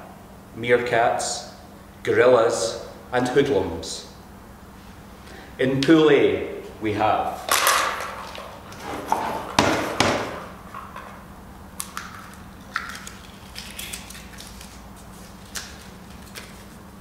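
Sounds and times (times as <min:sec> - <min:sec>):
faint steady hum: 0:00.0 - 0:17.0
paper rustling: 0:12.8 - 0:16.8.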